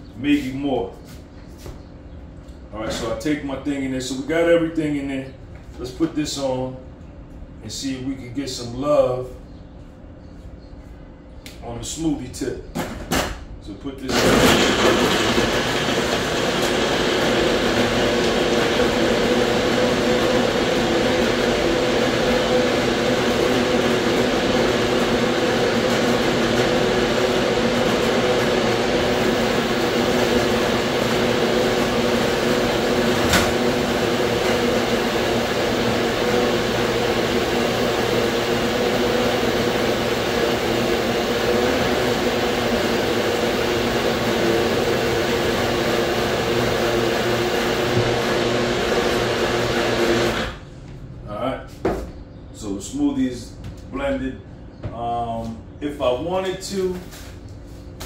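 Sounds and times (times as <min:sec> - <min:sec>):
blender running: 0:14.1 - 0:50.7.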